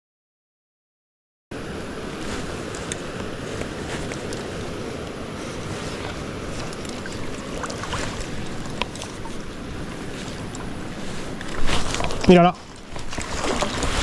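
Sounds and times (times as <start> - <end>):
river water rushing: 1.6 - 14.0.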